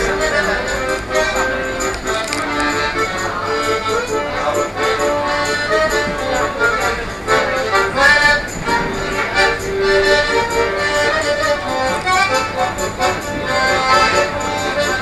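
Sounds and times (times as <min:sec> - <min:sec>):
accordion playing a tune: 0:00.0 - 0:15.0.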